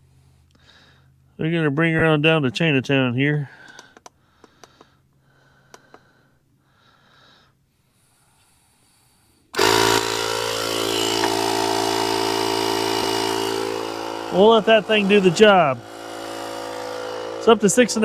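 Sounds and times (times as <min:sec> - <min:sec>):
tyre inflator running: 0:09.5 - 0:18.0.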